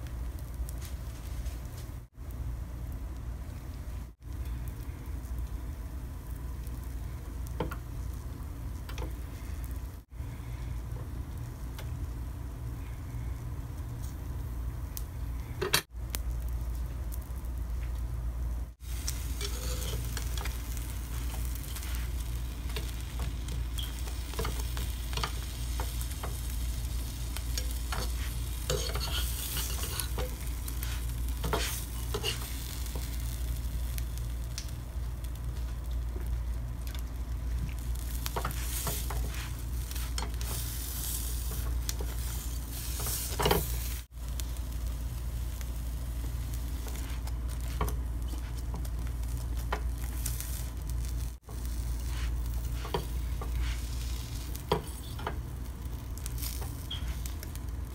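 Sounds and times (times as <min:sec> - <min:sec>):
steady low hum: 0:00.0 - 0:57.9
toast sizzling in frying pan: 0:00.0 - 0:57.9
metal spatula scraping pan: 0:19.3 - 0:20.6, 0:27.6 - 0:30.4, 0:31.4 - 0:32.6.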